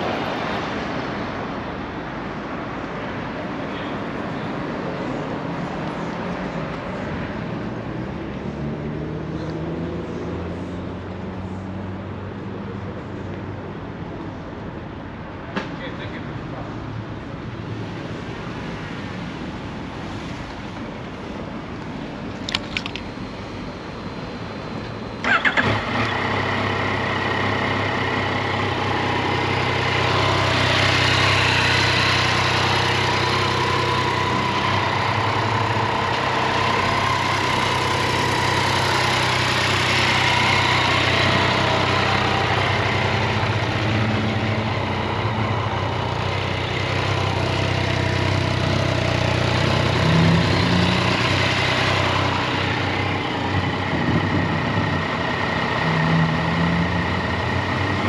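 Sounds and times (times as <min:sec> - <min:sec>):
motorcycle engine starting and idling: 0:25.1 - 0:58.0.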